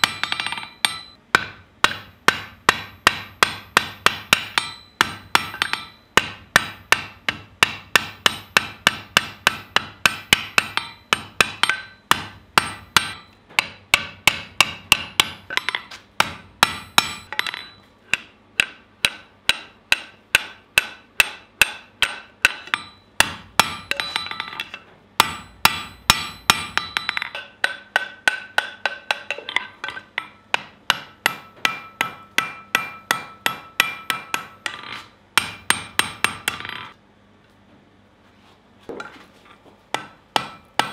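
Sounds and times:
hammer blows ringing on anvil: 0:00.0 - 0:24.6, 0:25.2 - 0:34.8, 0:35.4 - 0:36.8, 0:40.0 - 0:40.9.

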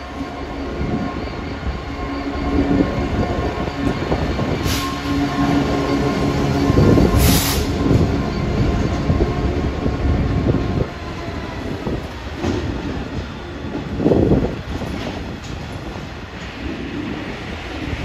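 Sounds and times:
freight train rumbling: 0:00.0 - 0:18.0.

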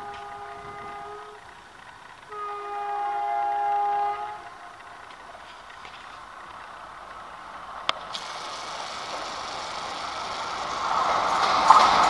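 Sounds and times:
locomotive air horn blasts: 0:00.0 - 0:01.5, 0:02.2 - 0:04.8.

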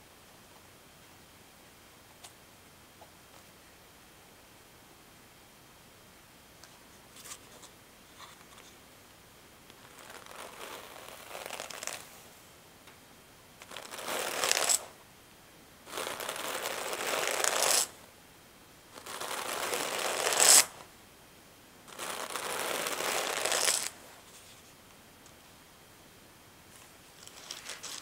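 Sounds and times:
hand cards brushing wool: 0:09.7 - 0:12.3, 0:13.6 - 0:14.9, 0:15.9 - 0:18.0, 0:19.0 - 0:20.8, 0:21.9 - 0:24.8, 0:26.8 - 0:28.0.

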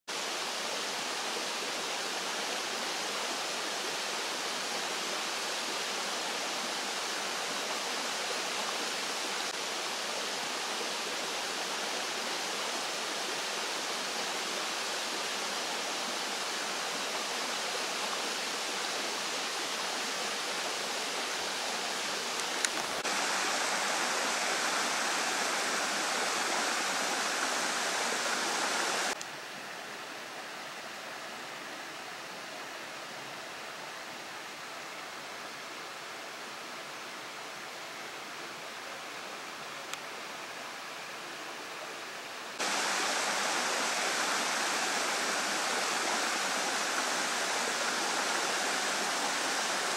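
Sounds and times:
stream water flowing: 0:00.1 - 0:49.9.

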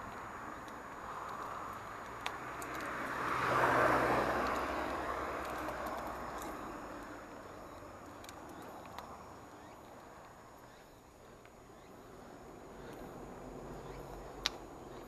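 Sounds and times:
bicycle rolling on pavement: 0:00.0 - 0:15.0
van driving past: 0:01.6 - 0:08.1
sharp tick: 0:14.4 - 0:14.6.

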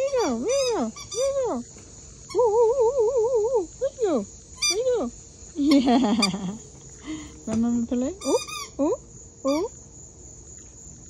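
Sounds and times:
rubber squeaky toy squeaking: 0:00.0 - 0:01.6, 0:04.6 - 0:04.9, 0:08.2 - 0:08.8.

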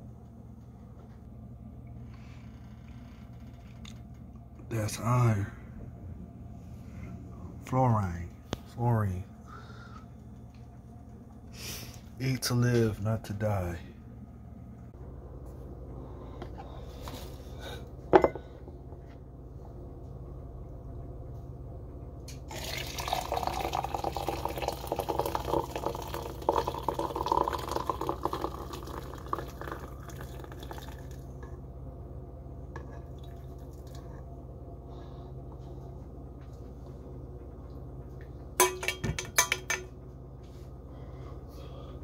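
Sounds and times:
steady low hum: 0:00.0 - 0:42.0
tea pouring into a glass jar: 0:22.5 - 0:31.2.

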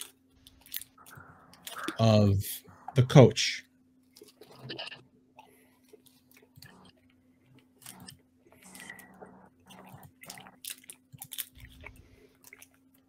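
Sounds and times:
low electrical hum: 0:00.0 - 0:13.0
clicks and crunching: 0:09.9 - 0:13.0.

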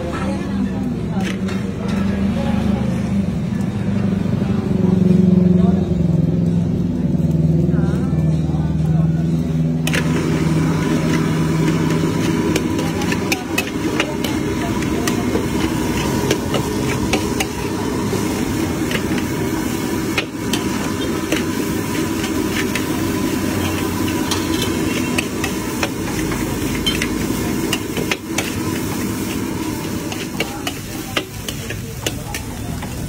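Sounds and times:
light sizzle: 0:00.0 - 0:33.0
metal spatula scraping wok: 0:10.7 - 0:33.0.

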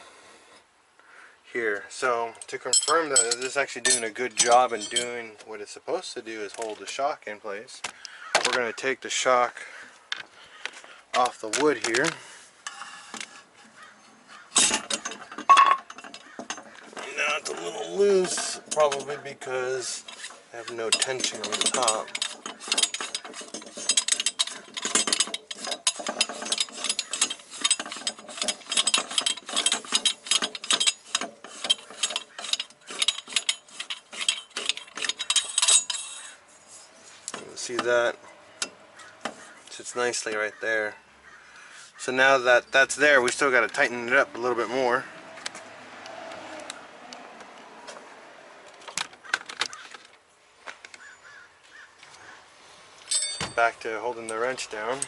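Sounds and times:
metal tools clinking: 0:02.4 - 0:05.5, 0:11.2 - 0:40.4, 0:53.0 - 0:55.0.

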